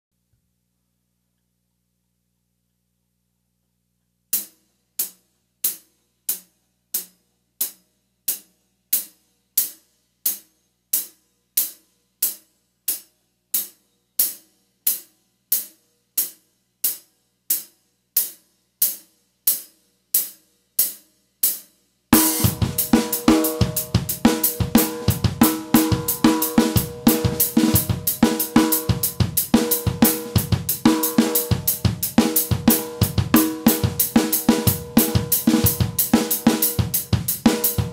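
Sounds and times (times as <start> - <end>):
drum stroke: 22.2 - 37.9
rock drum kit beat: 22.2 - 37.9.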